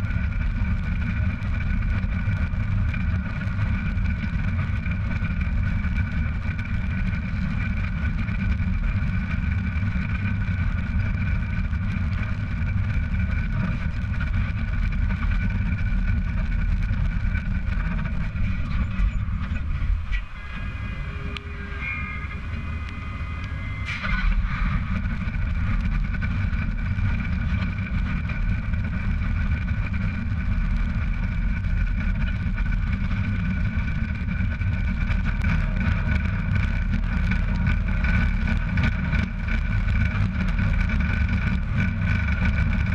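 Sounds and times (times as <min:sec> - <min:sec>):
trailer tyres road rumble: 0:00.0 - 0:42.9
high whining tones: 0:17.3 - 0:27.4.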